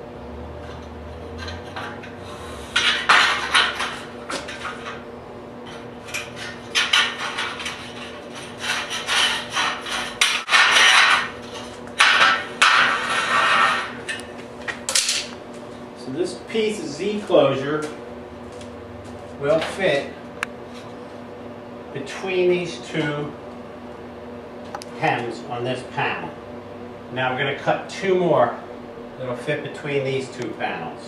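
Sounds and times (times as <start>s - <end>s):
low electrical hum: 0.0s - 31.0s
metal strip rattling: 6.1s - 13.9s
metal snips cutting sheet metal: 8.6s - 11.3s.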